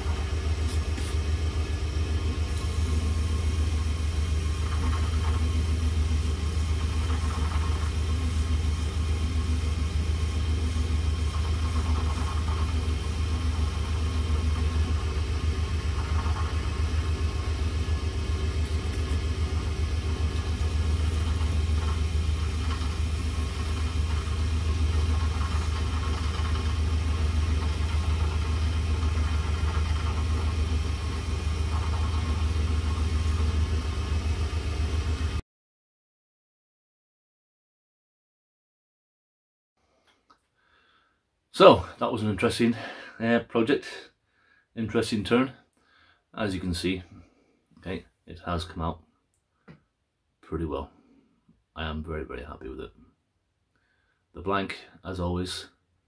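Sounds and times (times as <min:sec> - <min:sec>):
pad rubbing on spinning wood: 0:00.0 - 0:01.5, 0:02.3 - 0:35.4
lathe motor humming: 0:00.0 - 0:35.4.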